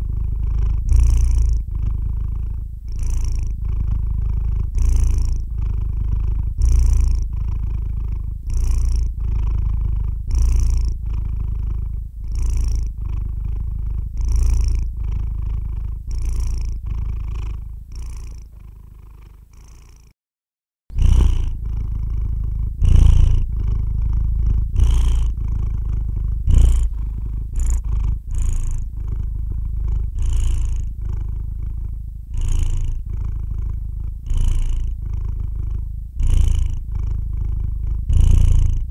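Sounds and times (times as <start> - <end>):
cat purring: 0.0 - 20.2, 20.9 - 38.9.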